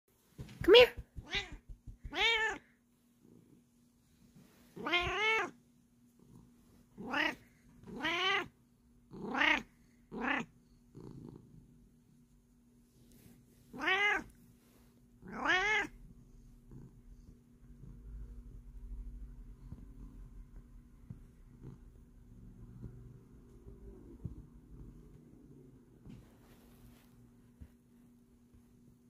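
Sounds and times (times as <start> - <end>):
cat meowing: 1.2 - 2.6, 4.8 - 5.6, 7.0 - 8.5, 9.2 - 10.5, 13.8 - 14.3, 15.3 - 16.0.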